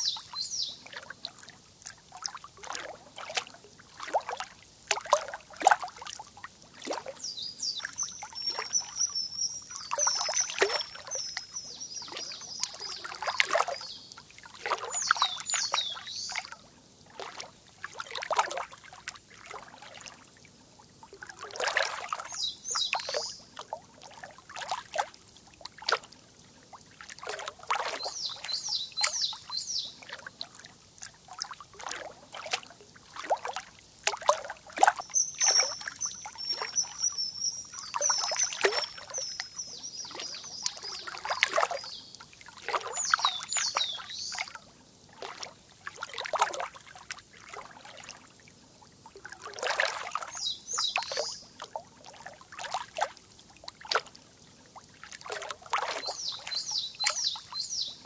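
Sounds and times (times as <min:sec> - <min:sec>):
water trickling and splashing: 0:00.0 - 0:58.0
songbird whistling and trilling: 0:07.3 - 0:13.0, 0:35.0 - 0:42.0.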